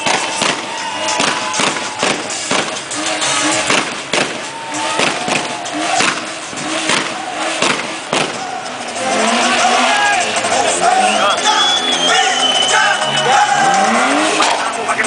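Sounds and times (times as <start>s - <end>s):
sharp pops: 0.0s - 3.0s, 3.6s - 8.4s
car engine at high revs: 0.0s - 15.0s.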